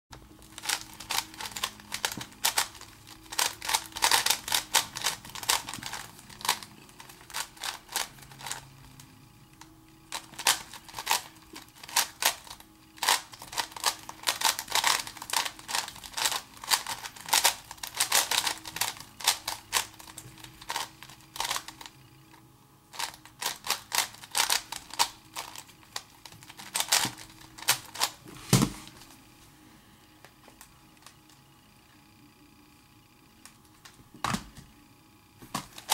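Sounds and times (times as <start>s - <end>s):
plastic puzzle cube clicking: 0.6s - 8.6s.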